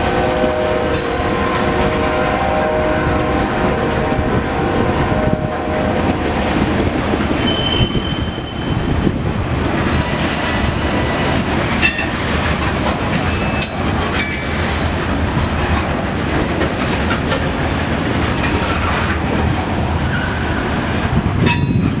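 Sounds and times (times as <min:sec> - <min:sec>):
train wheels rumbling on rails: 0:00.0 - 0:22.0
wheel squeals and clanks: 0:07.4 - 0:10.4.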